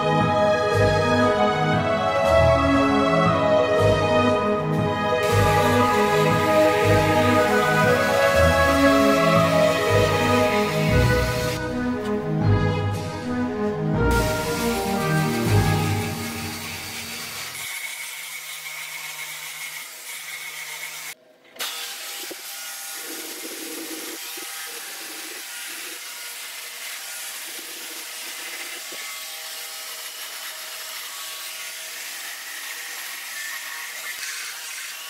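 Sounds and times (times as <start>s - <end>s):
rotary tool whining against wood: 14.2s - 35.0s.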